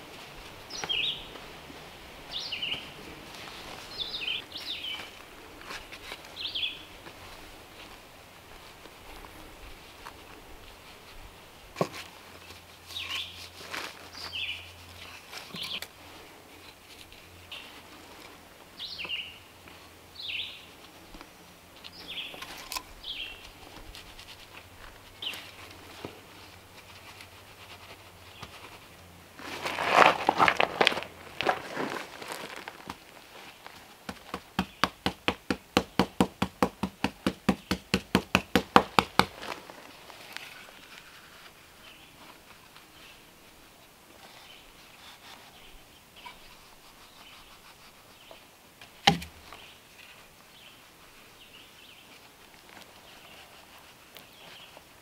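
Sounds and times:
sharp knocks: 0:49.0 - 0:49.4.

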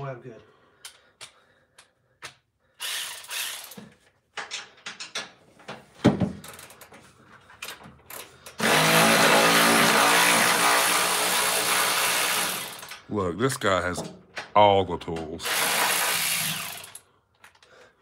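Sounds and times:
tools clicking and rattling: 0:00.8 - 0:08.6, 0:12.6 - 0:13.2, 0:16.4 - 0:17.8
cordless electric ratchet running: 0:02.8 - 0:03.8, 0:08.1 - 0:13.0, 0:15.4 - 0:17.0.

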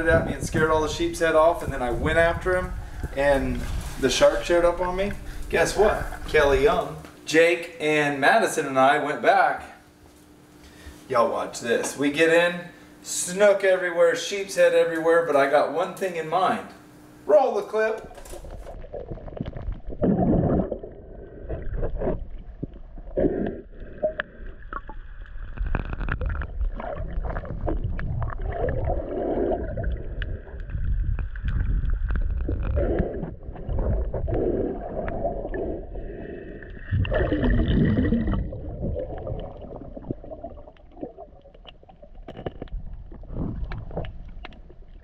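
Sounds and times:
faint steady whine: 0:00.0 - 0:45.0
muffled underwater rushing water: 0:18.4 - 0:45.0.

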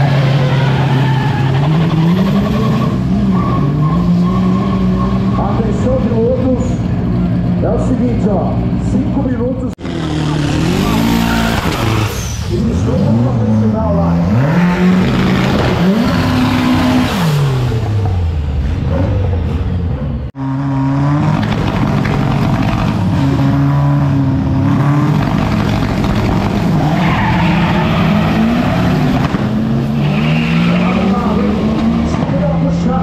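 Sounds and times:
tyre squeal: 0:00.0 - 0:05.6, 0:26.6 - 0:29.2, 0:29.9 - 0:31.4
race car engines revving: 0:00.0 - 0:33.0.

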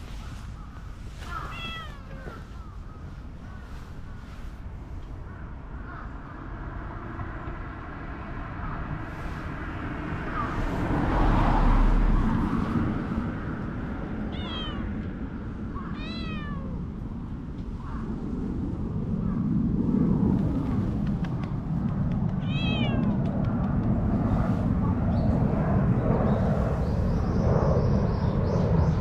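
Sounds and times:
outdoor background noise: 0:00.0 - 0:29.0
cat meowing: 0:01.3 - 0:02.6, 0:14.3 - 0:15.0, 0:15.8 - 0:16.9, 0:22.4 - 0:23.2.

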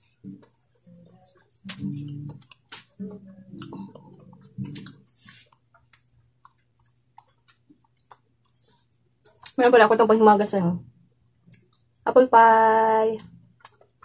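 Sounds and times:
chewing rice: 0:00.0 - 0:09.6, 0:11.2 - 0:12.0, 0:13.2 - 0:14.0.

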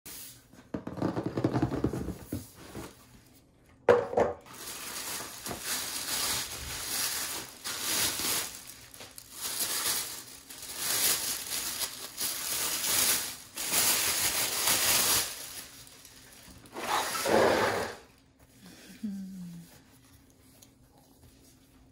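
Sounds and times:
plastic bag crinkling: 0:04.4 - 0:17.3.

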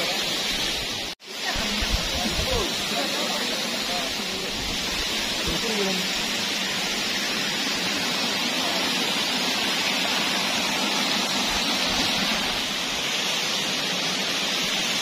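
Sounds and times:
water rushing over rocks: 0:00.0 - 0:15.0.

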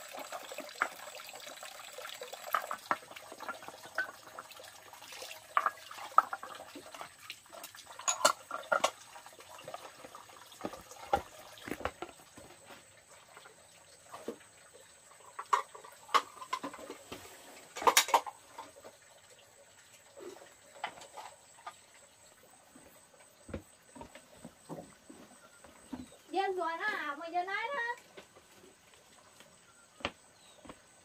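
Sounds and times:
dishes and utensils clattering: 0:03.4 - 0:04.3, 0:05.5 - 0:06.5, 0:08.0 - 0:09.2, 0:15.2 - 0:18.8.

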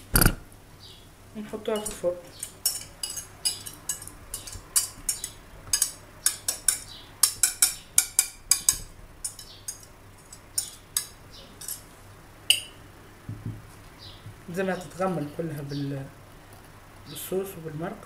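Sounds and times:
wire whisk clinking on ceramic dish: 0:01.8 - 0:11.8.

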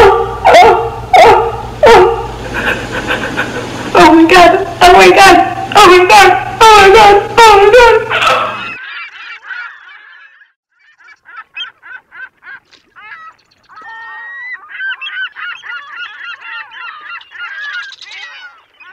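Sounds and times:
geese honking: 0:06.2 - 0:18.9.

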